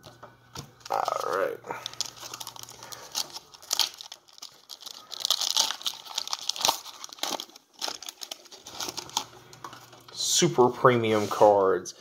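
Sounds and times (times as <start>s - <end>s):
foil wrapper tearing and crinkling: 0.8s - 10.0s.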